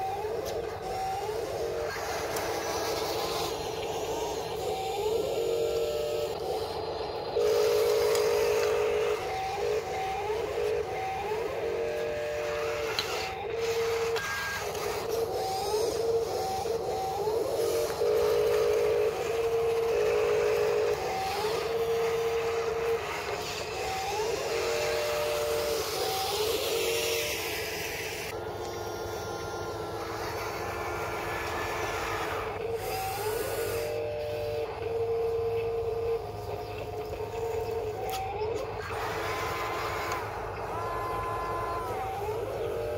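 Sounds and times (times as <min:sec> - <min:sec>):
electric motors whining: 0:00.0 - 0:42.9.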